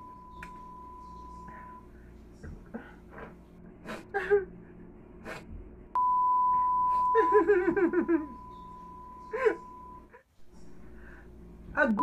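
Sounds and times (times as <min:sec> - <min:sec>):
steady high beep tone: 0:00.0 - 0:01.9, 0:06.0 - 0:10.1.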